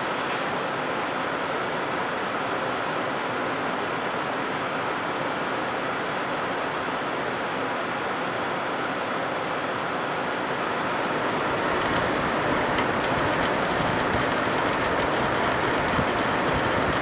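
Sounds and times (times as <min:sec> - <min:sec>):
computer fans whooshing: 0:07.4 - 0:17.0.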